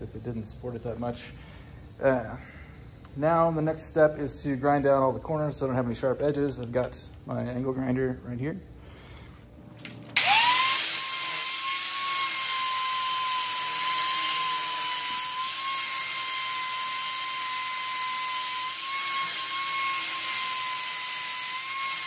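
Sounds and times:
angle grinder grinding steel: 10.2s - 22.0s.

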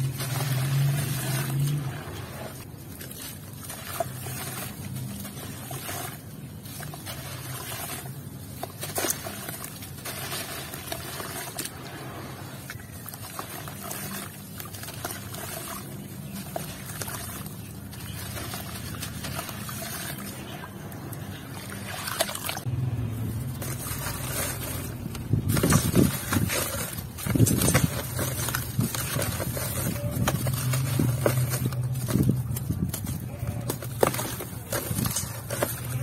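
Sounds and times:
dirt block crunching: 22.6s - 36.0s.

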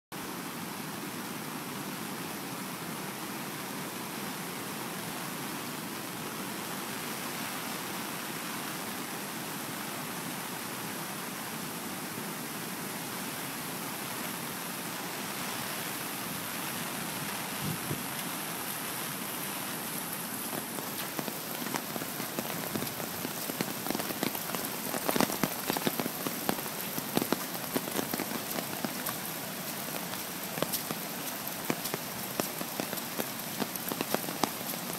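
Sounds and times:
flooded river rushing: 0.2s - 34.9s
heavy rain: 0.2s - 34.9s.

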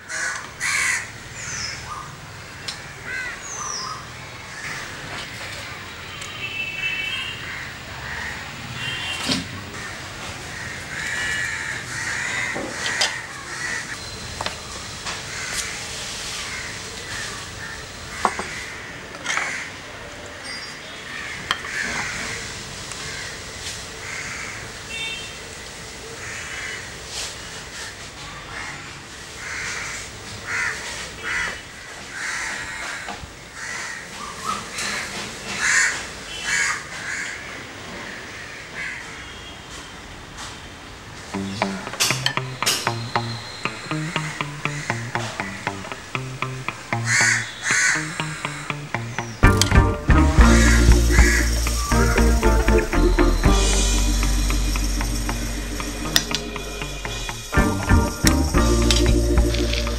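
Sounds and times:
crows cawing: 0.0s - 2.1s, 2.8s - 5.0s, 7.4s - 9.1s, 9.7s - 14.0s, 15.3s - 15.8s, 16.5s - 19.9s, 21.1s - 23.4s, 24.0s - 25.0s, 26.2s - 26.9s, 28.5s - 39.4s, 43.2s - 49.4s, 50.4s - 51.8s
birds calling: 41.3s - 59.9s.

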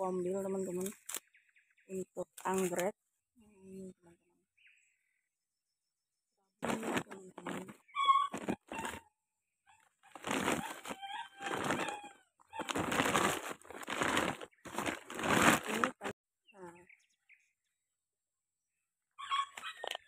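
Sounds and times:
plastic sack and paper bag rustling: 6.6s - 9.0s, 10.1s - 16.2s.

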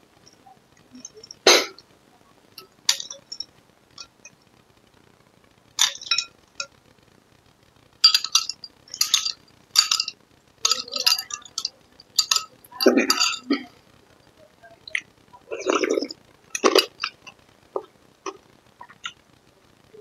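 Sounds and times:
metal spoon clinking on glass: 5.8s - 6.3s, 8.0s - 13.6s.

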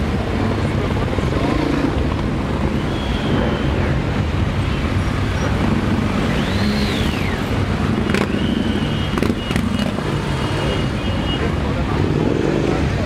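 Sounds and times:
motorcycle engines rumbling: 0.0s - 13.0s
rising and falling whistle: 2.7s - 3.9s, 6.2s - 7.5s.

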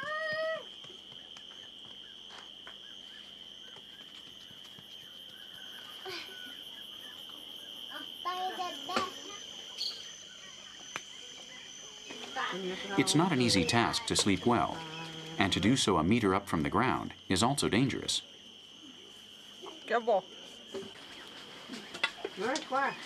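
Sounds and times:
high-pitched insect drone: 0.0s - 23.0s
voices: 6.0s - 23.0s.

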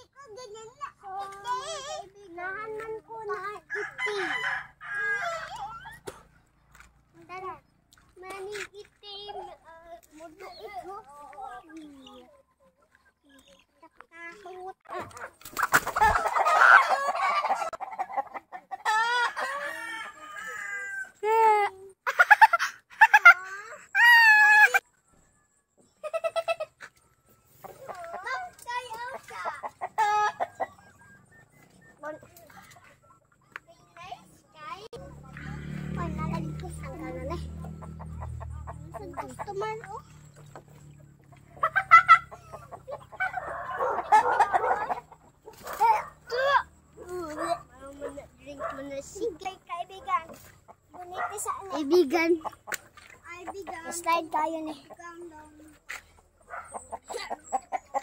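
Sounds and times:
chickens squawking and clucking: 14.9s - 21.2s, 27.5s - 31.8s, 35.0s - 48.8s, 56.2s - 58.0s.

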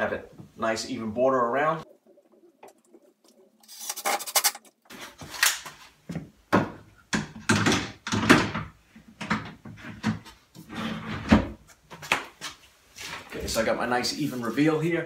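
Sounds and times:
drawers sliding: 9.7s - 11.6s.

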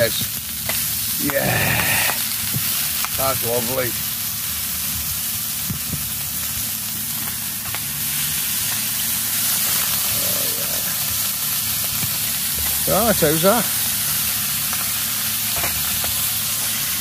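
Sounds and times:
bacon sizzling in a pan: 0.0s - 17.0s.

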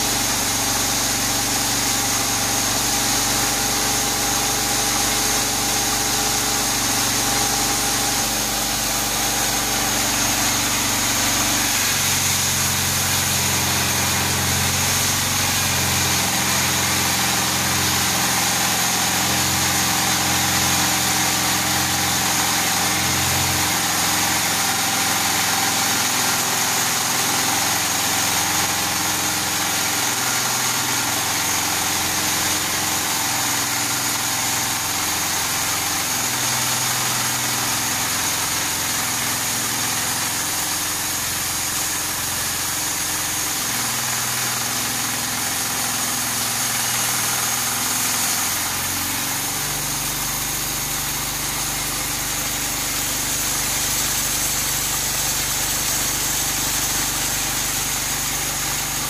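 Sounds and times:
saw blade whine: 0.0s - 59.0s
small engine running: 0.0s - 59.0s.

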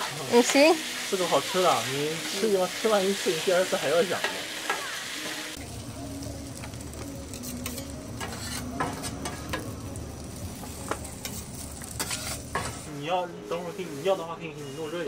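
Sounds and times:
noodles sizzling on griddle: 0.0s - 15.0s
metal spatula scraping steel plate: 7.3s - 9.6s, 12.0s - 12.9s.

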